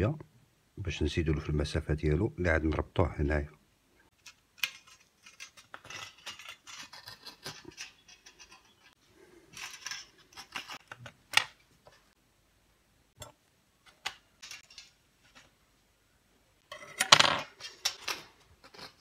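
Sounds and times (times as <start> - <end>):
metal tweezers scraping wire: 4.2 - 11.0, 17.6 - 19.0.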